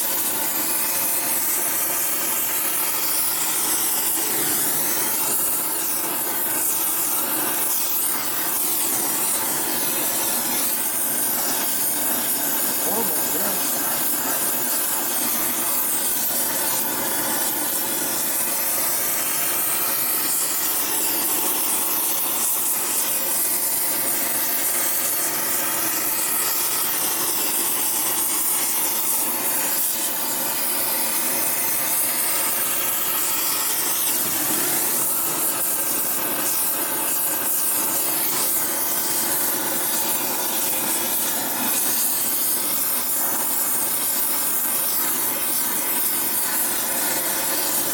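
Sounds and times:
gas torch flame hissing: 0.0s - 47.9s.

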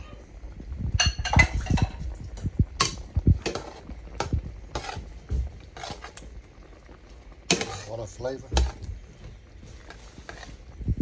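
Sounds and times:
utensil scraping a metal pan: 4.7s - 5.1s, 5.7s - 6.2s, 7.5s - 8.7s, 9.8s - 10.6s.

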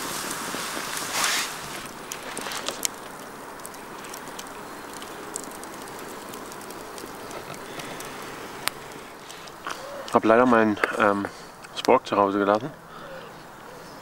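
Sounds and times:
campfire crackling and hissing: 0.0s - 14.0s.

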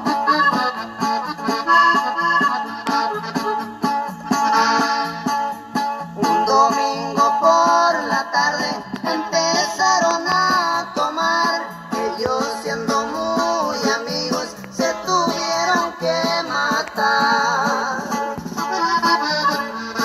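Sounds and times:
norteno music from cassette: 0.0s - 20.0s.

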